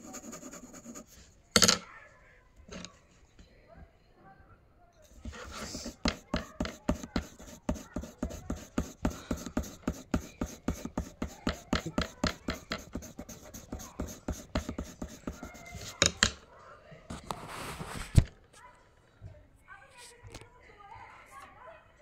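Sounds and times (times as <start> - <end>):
pencil scratching on paper: 0.0 - 1.3, 5.1 - 16.3.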